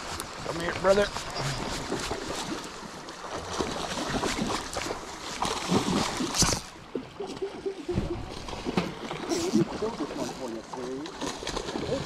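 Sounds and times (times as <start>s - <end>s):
fish splashing at surface: 1.3s - 6.8s.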